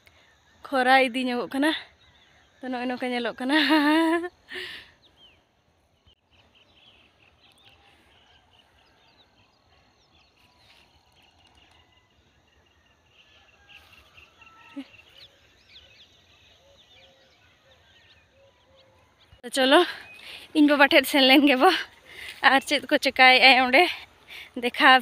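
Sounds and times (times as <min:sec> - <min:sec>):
small birds chirping: 0:01.5 - 0:25.0
lower repeated bird calls: 0:04.6 - 0:20.7.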